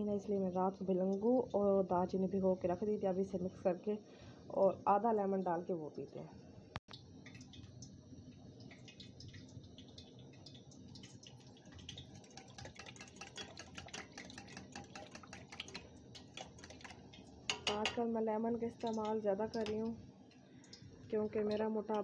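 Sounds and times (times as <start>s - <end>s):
water swishing in mug: 11.0s - 17.8s
spoon clinking against metal mug: 17.5s - 18.0s.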